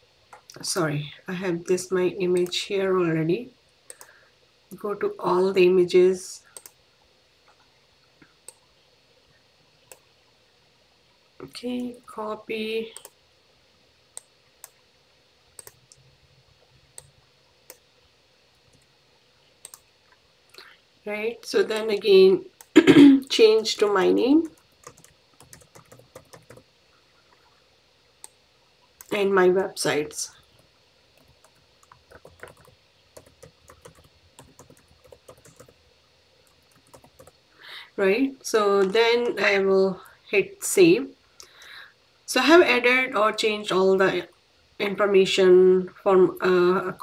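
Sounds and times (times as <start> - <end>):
computer mouse clicking: 3.9 - 4.1, 6.6 - 6.8, 8.4 - 8.6, 13.0 - 13.2, 14.2 - 14.8, 15.6 - 16.0, 16.9 - 17.1, 18.6 - 18.9, 19.6 - 19.9, 24.4 - 26.6, 30.5 - 35.8, 36.4 - 37.4.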